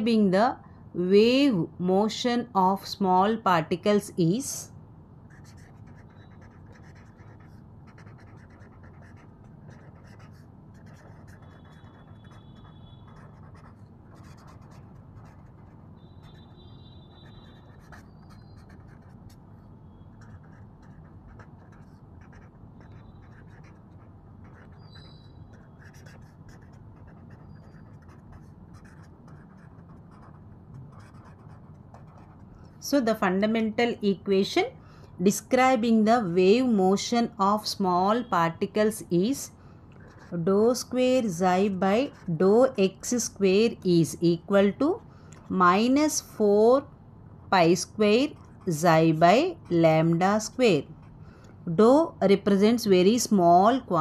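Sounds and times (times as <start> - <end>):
low room hum: 0.0 - 54.0
pen scratching on paper: 5.3 - 19.4, 20.1 - 32.5, 40.0 - 43.8, 47.5 - 51.2.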